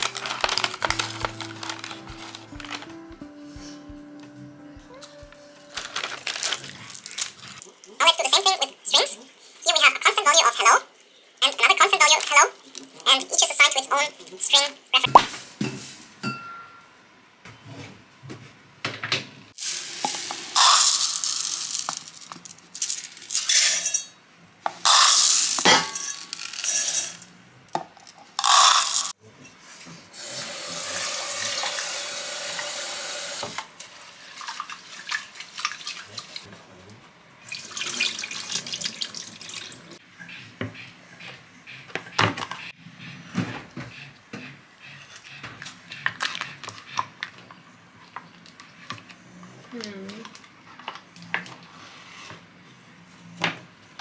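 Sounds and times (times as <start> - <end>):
kitchen utensils clattering: 25.6 - 27.2
kitchen tap running: 30.2 - 33.6, 37.4 - 39.9
water filling a metal pot: 37.5 - 39.9.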